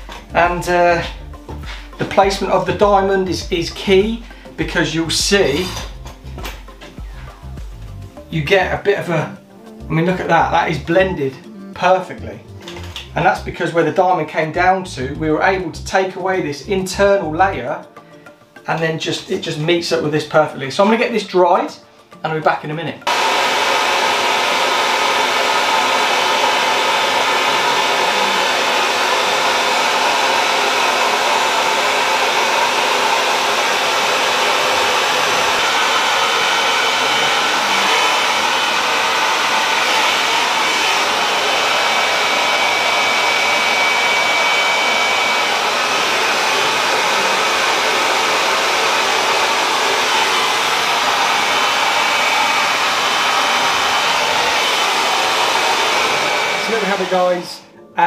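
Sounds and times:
hair dryer running: 23.1 - 57.6.

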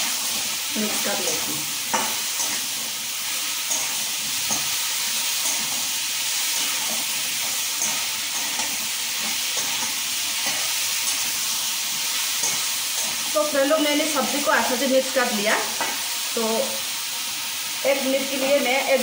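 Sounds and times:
vegetables sizzling in oil: 0.0 - 19.0
metal spoon scraping pan: 1.8 - 13.3.

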